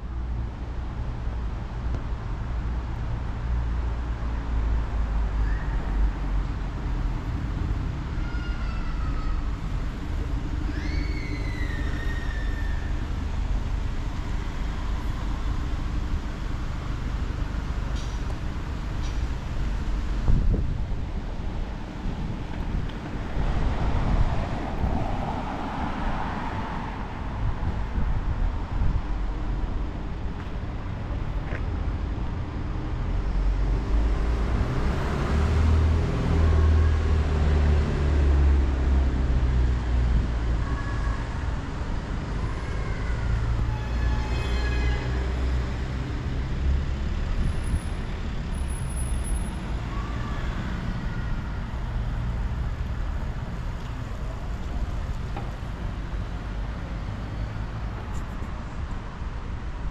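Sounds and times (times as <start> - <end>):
rumble of passing vehicles: 0.0 - 59.9
faint short squeals: 10.6 - 13.0.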